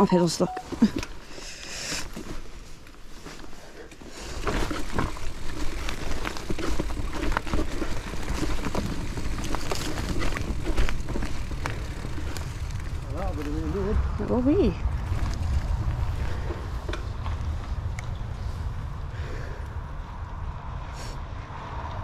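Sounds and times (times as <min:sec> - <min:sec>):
rumble of tyres and wind: 0:00.0 - 0:22.0
bike rattling and knocking: 0:03.2 - 0:18.3.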